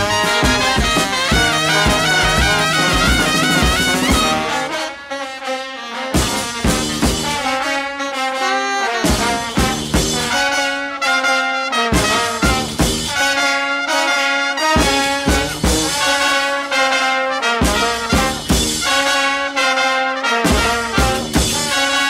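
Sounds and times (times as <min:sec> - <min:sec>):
steady drum beat: 0:00.0 - 0:04.8, 0:06.2 - 0:07.7, 0:08.9 - 0:10.6, 0:11.9 - 0:13.4, 0:14.7 - 0:16.5, 0:17.4 - 0:19.4, 0:20.4 - 0:22.0
upbeat brass music: 0:00.0 - 0:22.0.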